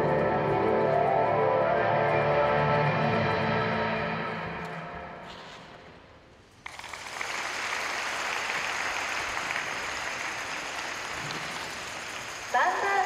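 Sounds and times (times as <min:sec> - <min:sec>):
music: 0:00.0 - 0:05.9
audience applauding: 0:06.6 - 0:13.0.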